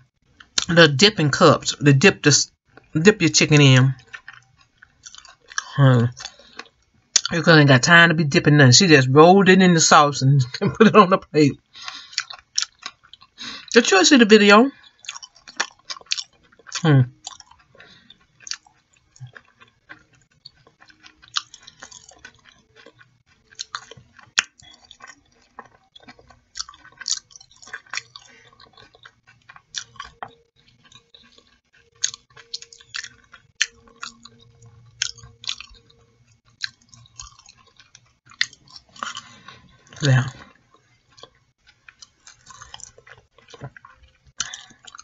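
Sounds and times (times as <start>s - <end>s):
person chewing with mouth smacks: 3.9s - 7.3s, 11.7s - 13.8s, 14.7s - 45.0s.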